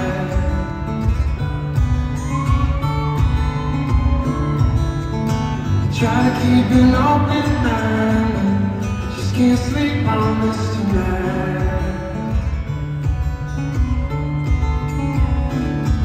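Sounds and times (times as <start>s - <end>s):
man singing: 0.0s - 4.8s, 5.6s - 13.0s
acoustic guitar: 0.0s - 16.0s.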